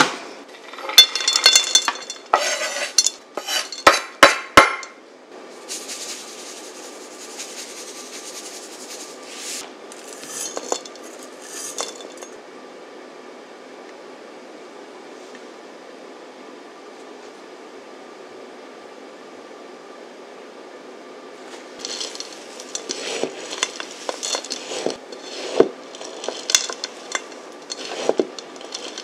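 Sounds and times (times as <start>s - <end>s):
chocolate scraped off cutting board: 2.3s - 3.9s, 21.9s - 29.0s
salt pouring hiss: 5.6s - 11.9s.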